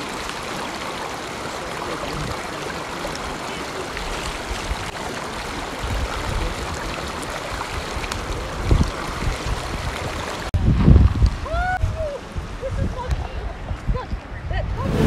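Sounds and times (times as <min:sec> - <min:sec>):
water rushing over rocks: 0:00.0 - 0:13.1
wind rumble on microphone: 0:05.8 - 0:15.0.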